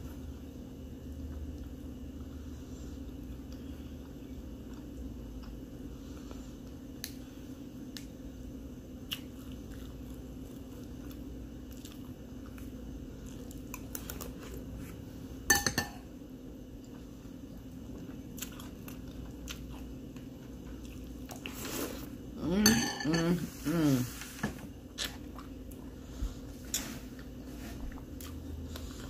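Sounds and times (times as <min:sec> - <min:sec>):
low room hum: 0:00.0 - 0:29.0
cereal being chewed: 0:09.0 - 0:15.0, 0:16.8 - 0:22.2.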